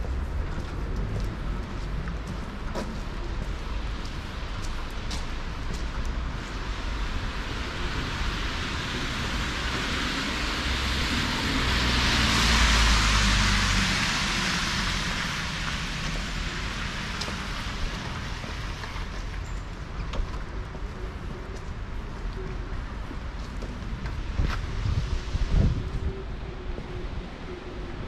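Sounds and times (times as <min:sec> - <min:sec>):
street noise: 0:00.0 - 0:28.0
tyres hissing on wet asphalt: 0:06.3 - 0:19.4.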